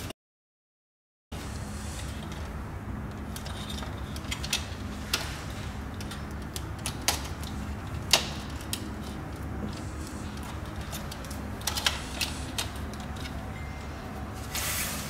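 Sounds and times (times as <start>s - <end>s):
steady low hum: 1.3s - 15.0s
wires clicking into terminal bar: 5.9s - 13.6s.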